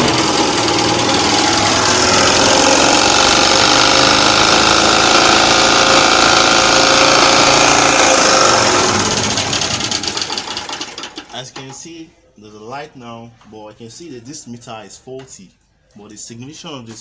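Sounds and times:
generator engine running: 0.0 - 11.3.

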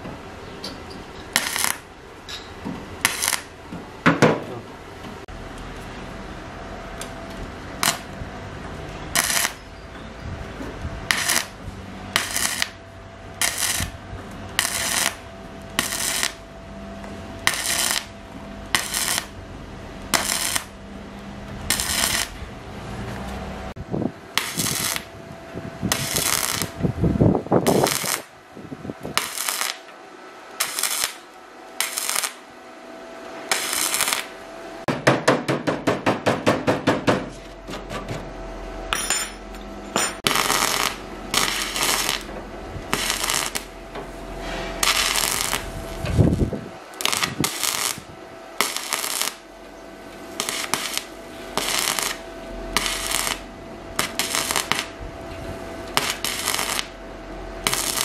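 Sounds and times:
arc welding crackling: 1.2 - 2.0, 3.0 - 3.7, 7.0 - 8.4, 9.0 - 9.7, 11.0 - 23.5, 24.3 - 25.2, 25.8 - 32.6, 33.5 - 34.4, 40.2 - 58.0.

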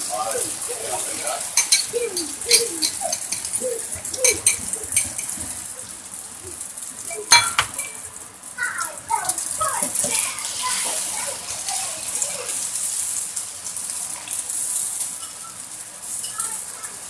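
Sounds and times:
egg sizzling in a wok: 0.0 - 17.0
fork clinking against bowl: 1.6 - 5.4, 7.3 - 8.0.

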